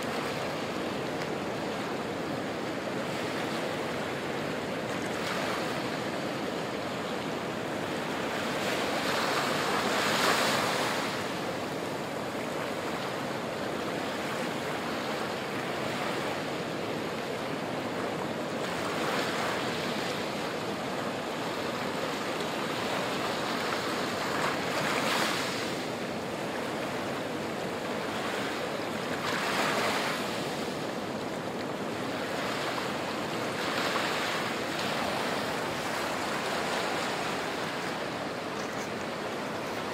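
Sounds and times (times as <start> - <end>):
small waves washing up shore: 0.0 - 39.9.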